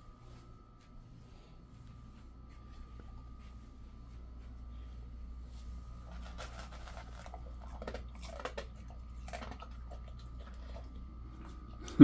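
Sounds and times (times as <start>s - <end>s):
dog crunching kibble from metal bowl: 6.0s - 11.9s.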